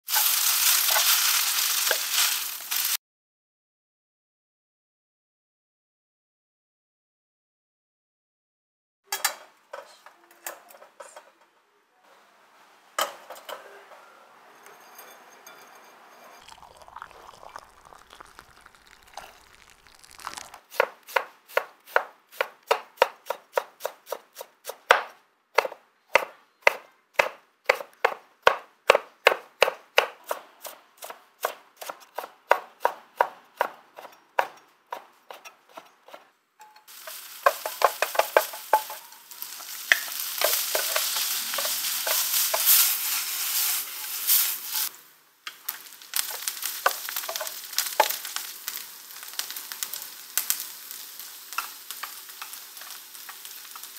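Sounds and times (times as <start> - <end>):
vegetables sizzling in a pan: 0.0 - 3.0, 16.4 - 24.5, 36.9 - 53.9
knife chopping on wooden board: 20.8 - 36.2.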